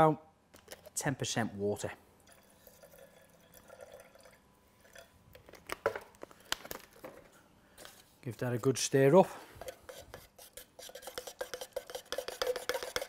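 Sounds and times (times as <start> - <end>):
water trickling into metal container: 2.2 - 5.2.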